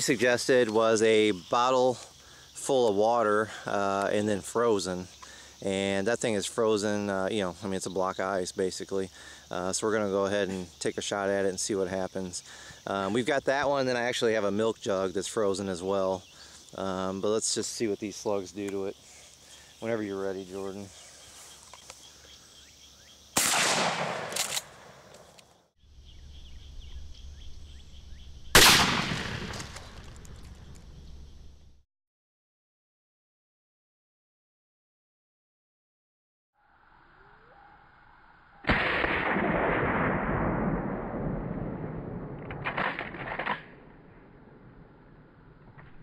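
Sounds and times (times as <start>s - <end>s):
faint outdoor ambience: 0.0s - 31.8s
shotgun blast: 23.4s - 25.2s, 28.5s - 30.0s, 38.7s - 43.1s
shotgun shot rolling off: 28.6s - 30.5s.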